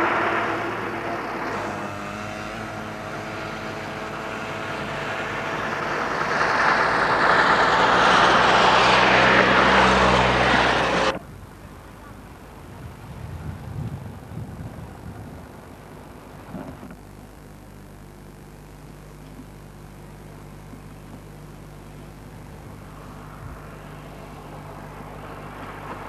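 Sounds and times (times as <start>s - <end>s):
old car engines driving past: 0.0s - 11.2s, 22.1s - 26.0s.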